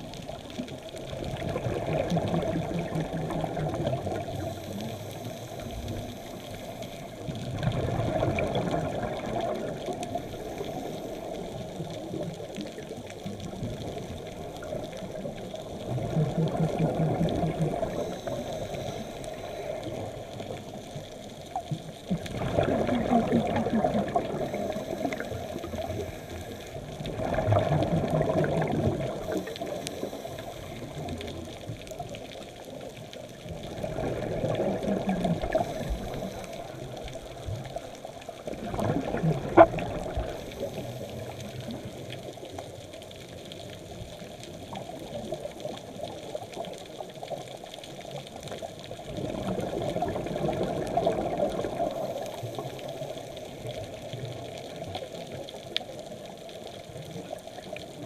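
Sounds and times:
exhaled bubbles rushing: 0:00.0 - 0:58.0
hiss of water: 0:00.6 - 0:32.8, 0:33.7 - 0:42.8, 0:48.4 - 0:55.2
diver breathing through regulator: 0:17.8 - 0:20.2.

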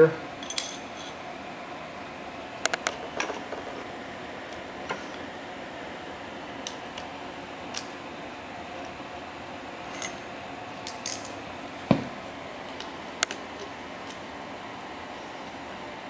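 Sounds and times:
metal tools clinking: 0:00.4 - 0:01.2, 0:09.9 - 0:10.3, 0:10.9 - 0:11.4.

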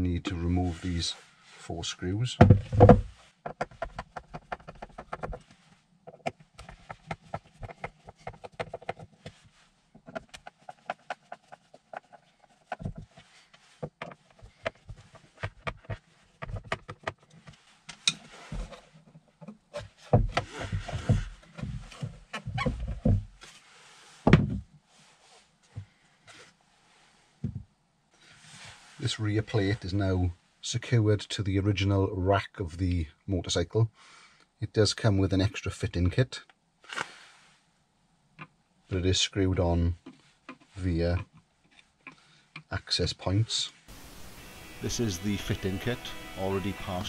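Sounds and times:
plastic knocks and scrapes: 0:02.4 - 0:23.6, 0:24.2 - 0:24.8, 0:27.4 - 0:27.7.

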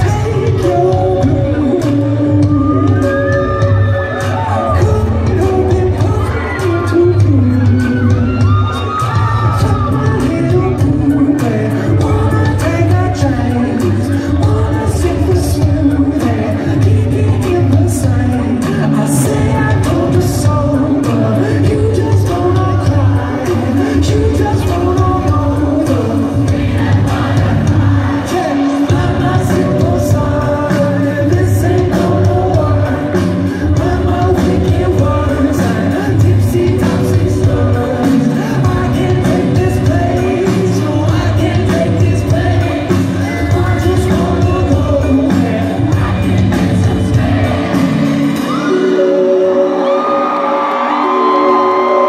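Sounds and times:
crowd shouting and whooping: 0:00.0 - 0:52.0
live band playing pop song: 0:00.0 - 0:52.0
person singing: 0:00.0 - 0:52.0.

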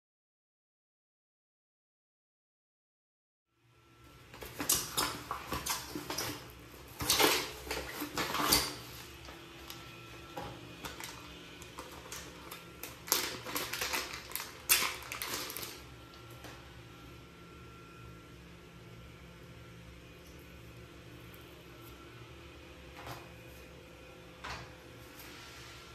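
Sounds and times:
plastic packaging crinkling: 0:04.4 - 0:09.8, 0:10.8 - 0:15.9.

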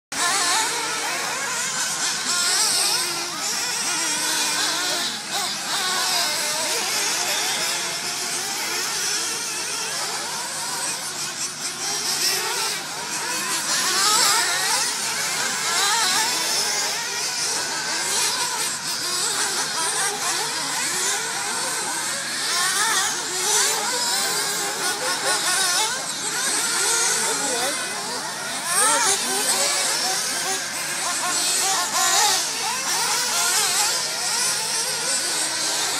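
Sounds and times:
small rc car engines revving: 0:00.1 - 0:35.9.

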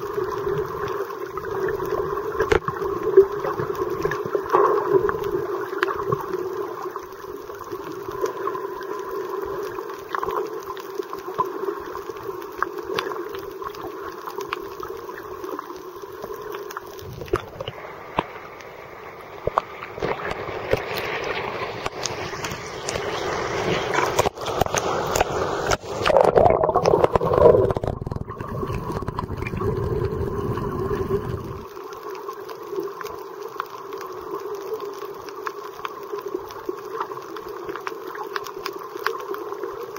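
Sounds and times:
underwater hum: 0:00.0 - 0:39.9
water sloshing and splashing: 0:19.4 - 0:31.7.

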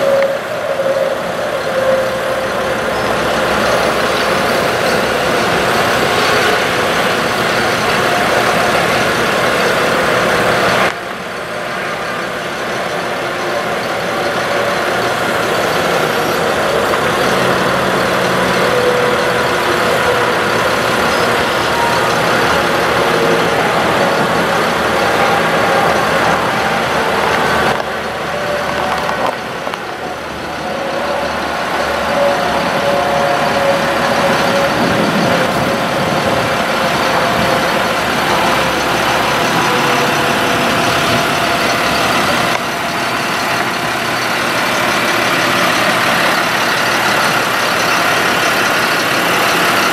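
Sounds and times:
truck engine running: 0:00.0 - 0:49.9.

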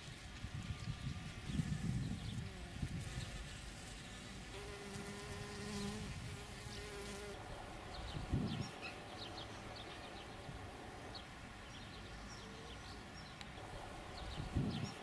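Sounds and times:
wind rumble on microphone: 0:00.0 - 0:12.1, 0:13.5 - 0:15.0
flying insect buzzing: 0:01.1 - 0:08.7.

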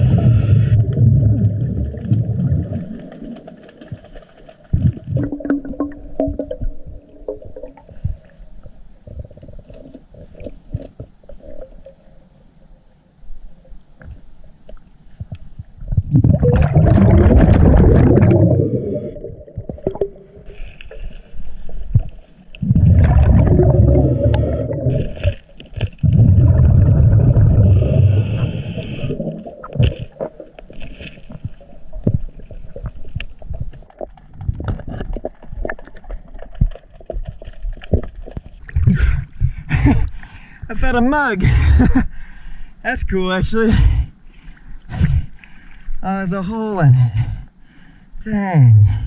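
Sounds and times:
bubbling regulator exhalations: 0:00.0 - 0:03.3, 0:04.8 - 0:08.3, 0:15.9 - 0:20.5, 0:22.6 - 0:25.4, 0:26.0 - 0:30.3.

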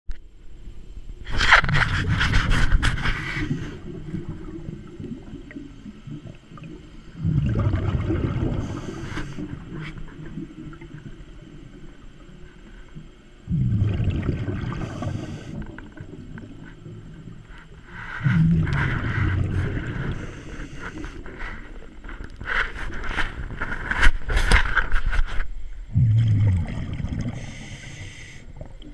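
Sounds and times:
diver exhaling bubbles underwater: 0:01.7 - 0:12.3, 0:13.4 - 0:17.3, 0:18.0 - 0:21.2, 0:25.9 - 0:28.9.

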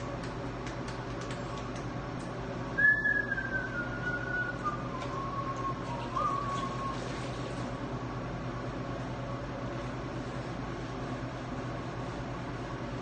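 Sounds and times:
low fan hum: 0:00.0 - 0:13.0
person whistling: 0:02.8 - 0:07.0.

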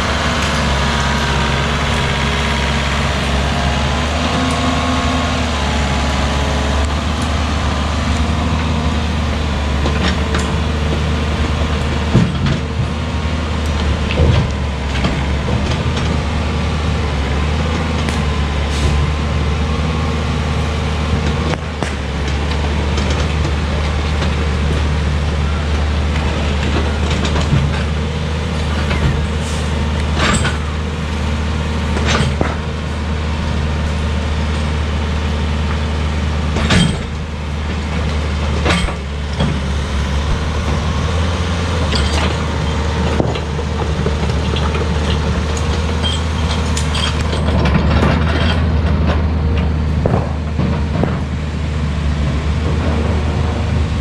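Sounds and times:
excavator diesel engine running: 0:00.0 - 0:54.0
sharp knocks and clanks: 0:09.8 - 0:13.0, 0:36.5 - 0:51.4.

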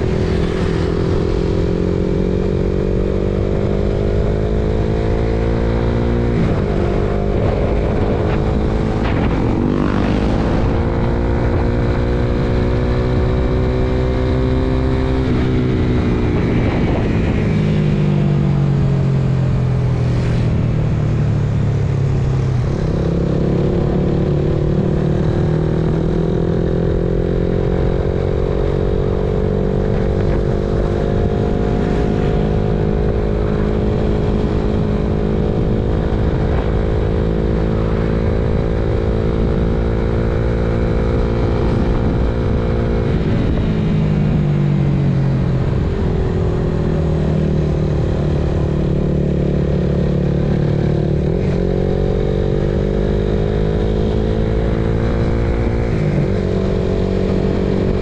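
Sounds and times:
motorcycle engine running: 0:00.0 - 0:19.1.

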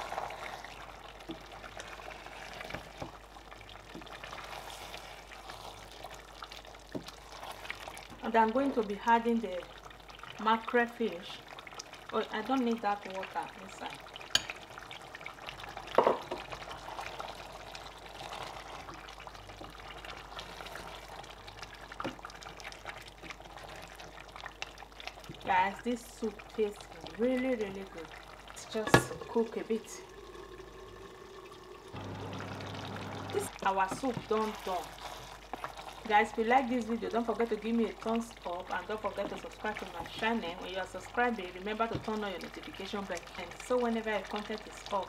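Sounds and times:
wooden spoon stirring: 0:00.0 - 0:09.1, 0:13.6 - 0:29.8, 0:32.0 - 0:44.8
soup simmering with crackles: 0:00.0 - 0:45.0
wooden spoon scraping soup pot: 0:16.4 - 0:21.2, 0:33.4 - 0:36.1.

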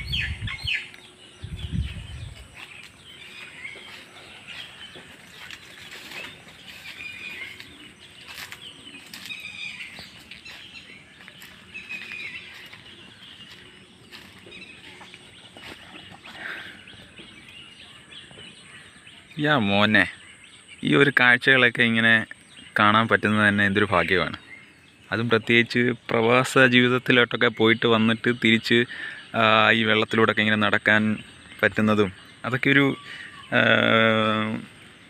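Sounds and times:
small birds chirping: 0:00.0 - 0:35.0
heavy low thumps: 0:01.4 - 0:02.6.

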